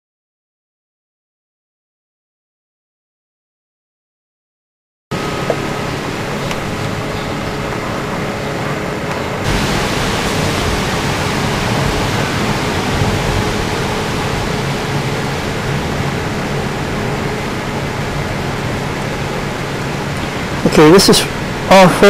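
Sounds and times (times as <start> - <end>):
chicken frying in oil: 9.4 - 15.8.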